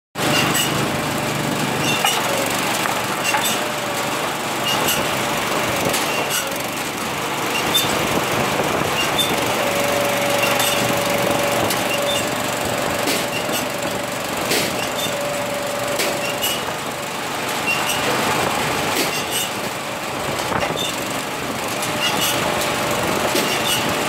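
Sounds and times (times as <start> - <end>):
log splitter engine running: 0.2 - 24.0
steady hydraulic whine: 0.2 - 24.0.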